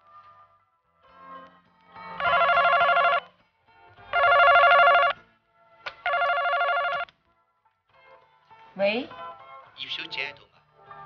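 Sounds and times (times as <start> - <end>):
desk telephone ringing: 2.2 - 3.2, 4.1 - 5.2, 6.1 - 7.0.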